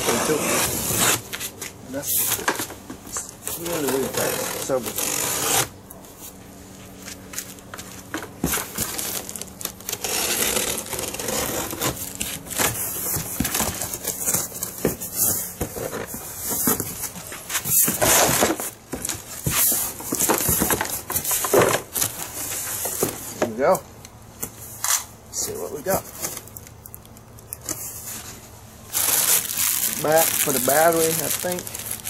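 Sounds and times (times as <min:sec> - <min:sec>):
plastic packing crinkling: 0:07.4 - 0:23.1, 0:28.9 - 0:32.0.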